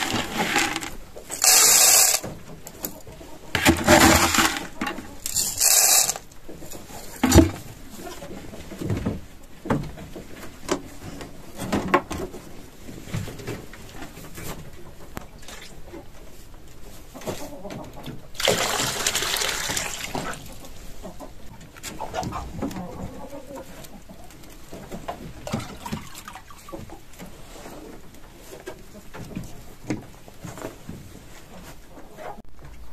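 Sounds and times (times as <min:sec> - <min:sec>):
dry feed poured into metal feeder: 0:00.0 - 0:02.3, 0:03.6 - 0:06.3, 0:18.4 - 0:20.2.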